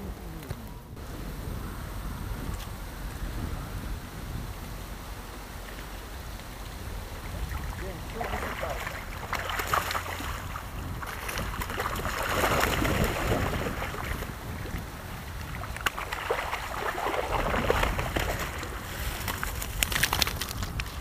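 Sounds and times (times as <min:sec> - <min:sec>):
wind rumble on microphone: 0:00.0 - 0:21.0
water splashing off a net: 0:07.3 - 0:14.3, 0:15.4 - 0:20.6.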